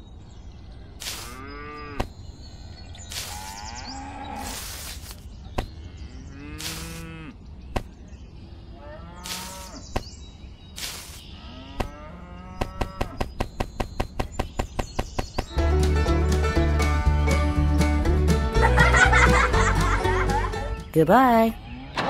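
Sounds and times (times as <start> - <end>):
cattle mooing: 6.3 - 7.3.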